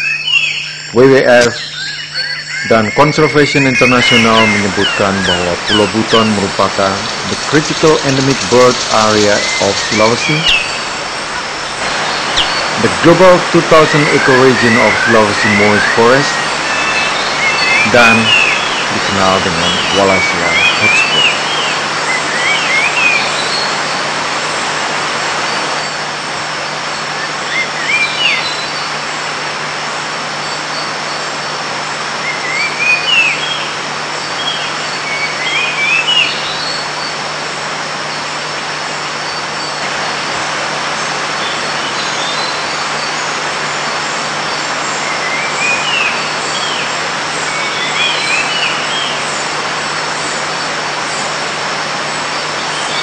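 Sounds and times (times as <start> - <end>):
bird whistling rising phrases: 0.0 - 24.0, 27.1 - 28.9, 32.2 - 33.8, 34.4 - 36.8, 44.9 - 49.2
high insect whines: 0.0 - 29.3
loud steady hiss: 2.6 - 53.0.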